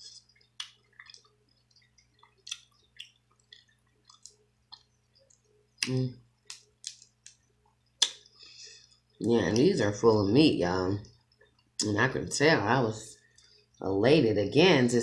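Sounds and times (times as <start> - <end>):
crab shell cracking and clicking: 0.3 - 7.4.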